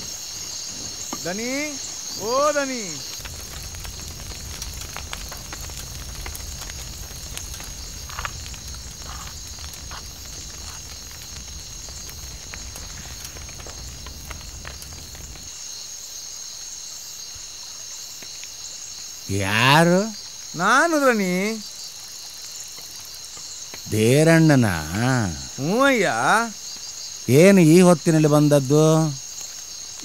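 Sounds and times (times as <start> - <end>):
insects trilling: 0.0 - 30.0
wood fire crackling: 0.0 - 30.0
low rumble: 3.2 - 15.5.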